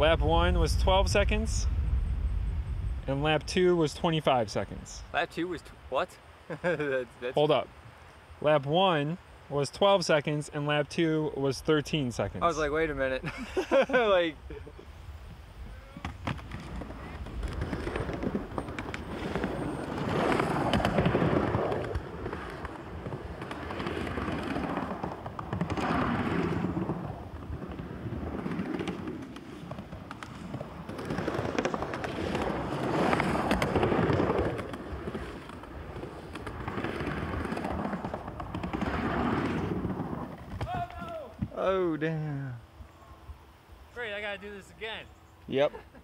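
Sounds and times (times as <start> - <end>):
skateboard wheels rolling: 15.6 - 41.7
skateboard clacks: 16.0 - 41.5.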